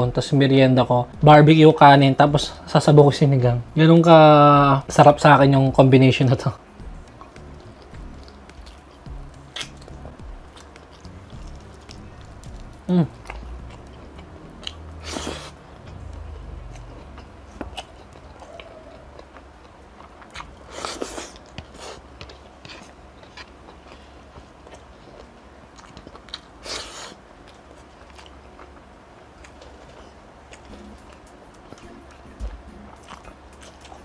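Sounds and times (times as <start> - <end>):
close-miked chewing with wet clicks: 7.0 - 15.0, 17.2 - 26.5, 27.4 - 34.0.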